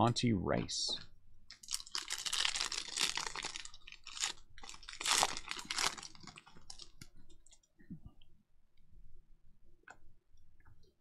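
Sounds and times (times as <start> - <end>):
plastic wrapper crinkling and tearing: 1.5 - 7.6.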